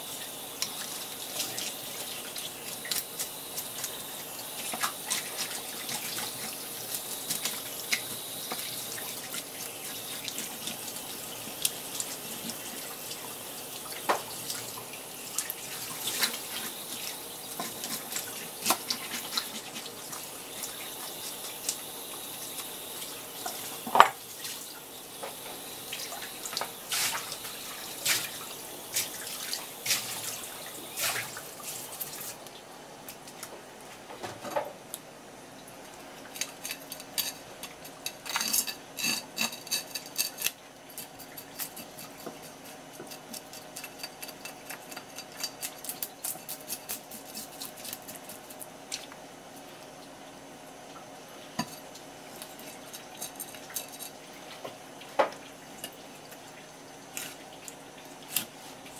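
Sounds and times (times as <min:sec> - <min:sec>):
water running from a hose: 0:00.0 - 0:32.5
knife scraping fish scales: 0:38.0 - 0:48.7.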